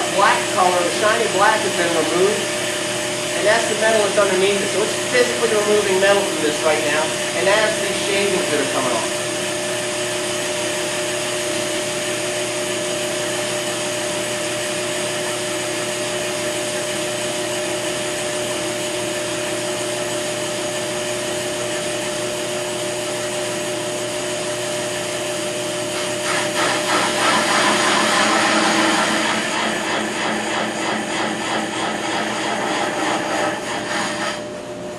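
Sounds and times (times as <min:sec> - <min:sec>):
brake lathe whirring: 0:24.7 - 0:34.8.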